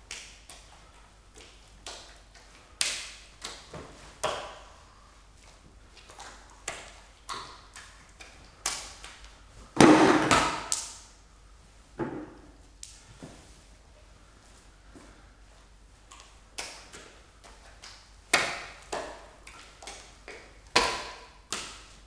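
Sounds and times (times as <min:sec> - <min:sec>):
wet slaps in bare hands: 0:00.1 - 0:00.7, 0:02.8 - 0:04.6, 0:06.0 - 0:09.3, 0:10.2 - 0:11.1, 0:16.1 - 0:22.0
thud: 0:09.8 - 0:10.7.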